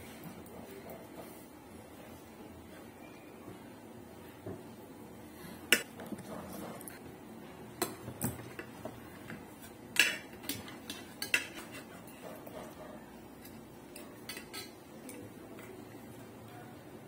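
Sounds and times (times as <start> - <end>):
spoons clinking on plates: 10.0 - 16.0.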